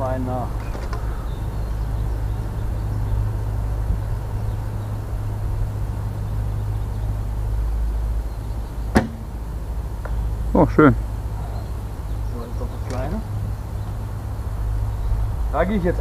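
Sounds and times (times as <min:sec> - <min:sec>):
bow shot snap: 0:08.9 - 0:09.3.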